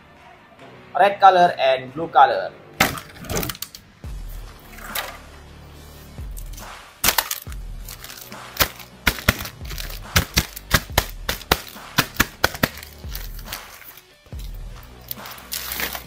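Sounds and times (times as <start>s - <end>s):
plastic bag crinkling: 7.4s - 11.8s.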